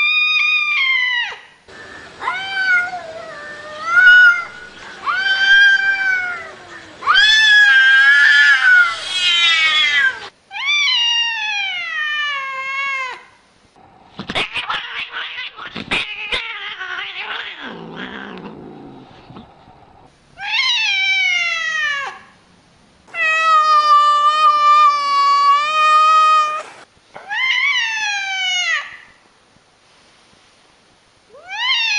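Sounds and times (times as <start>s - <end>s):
cat meowing: 2.2s - 13.2s, 14.4s - 18.6s
cats yowling: 2.2s - 13.2s, 14.3s - 19.0s, 20.4s - 22.3s, 23.1s - 29.1s, 31.4s - 31.9s.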